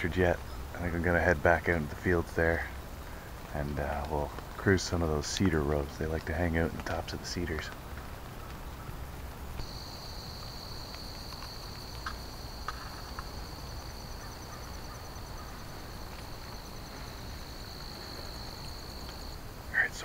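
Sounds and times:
faint clicks: 0:03.2 - 0:20.0
cricket trilling: 0:09.6 - 0:20.0.

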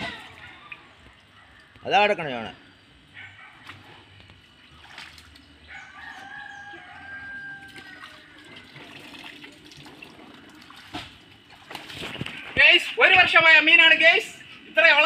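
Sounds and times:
water sloshing and splashing: 0:03.6 - 0:06.2, 0:07.6 - 0:13.0
rooster crowing: 0:05.6 - 0:08.7.

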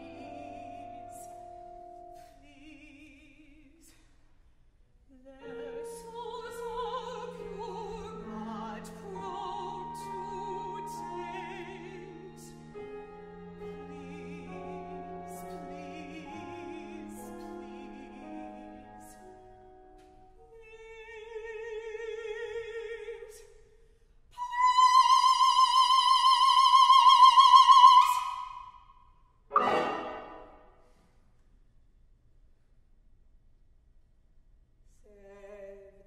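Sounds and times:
operatic singing with vibrato: 0:05.1 - 0:19.3, 0:24.4 - 0:28.8, 0:29.5 - 0:30.6
strings and piano ensemble: 0:05.4 - 0:20.0, 0:29.5 - 0:30.6
sharp percussive strikes: 0:29.5 - 0:30.6.

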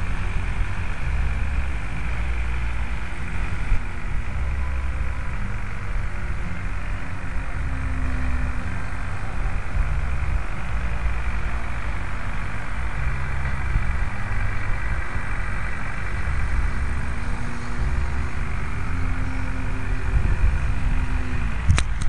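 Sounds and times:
faint gliding whine: 0:00.0 - 0:22.0
wind buffeting microphone: 0:08.8 - 0:22.0.

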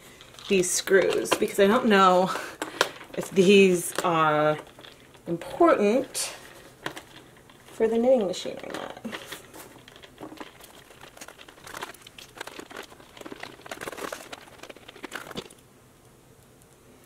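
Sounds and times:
small clicks and scrapes: 0:00.0 - 0:15.6
cardboard box crinkling: 0:02.3 - 0:15.6.

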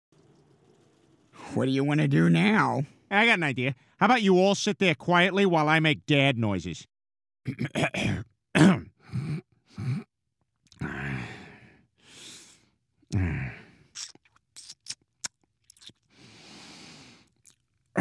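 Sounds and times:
breathy exhale: 0:10.8 - 0:13.9, 0:16.1 - 0:17.3
man grunting: 0:13.1 - 0:13.7
mouth clicks: 0:14.0 - 0:16.0.

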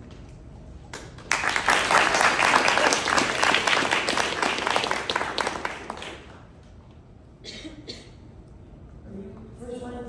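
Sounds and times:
audience applauding: 0:01.0 - 0:06.5.

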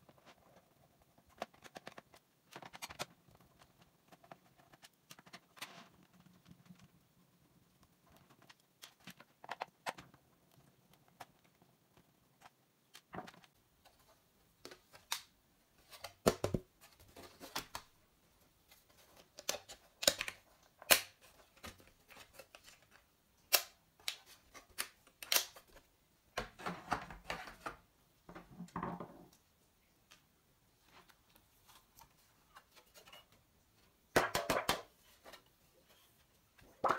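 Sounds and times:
plastic keyboard housing clicking: 0:23.5 - 0:25.6.

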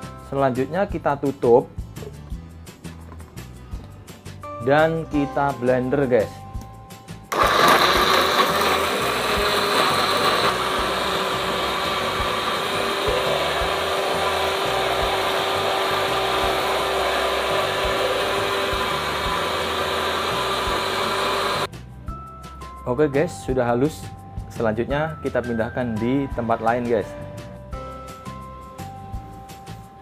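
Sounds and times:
electric blender running: 0:07.3 - 0:21.7.

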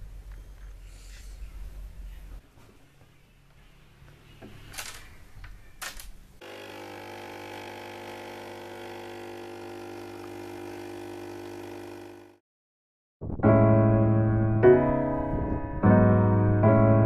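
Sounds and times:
espresso machine pump humming: 0:06.4 - 0:12.4
coffee pouring into cup: 0:06.5 - 0:12.3.

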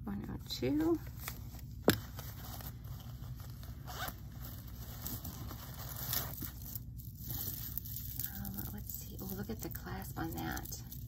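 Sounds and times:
fabric rustling: 0:00.6 - 0:11.0
zipper being drawn open: 0:03.8 - 0:06.4.

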